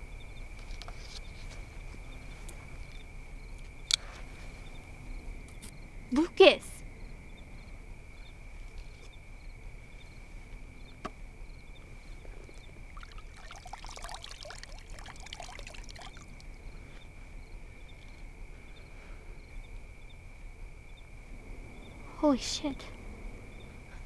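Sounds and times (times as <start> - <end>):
night insects chirping: 0.0 - 24.0
water pouring and trickling: 12.9 - 16.6.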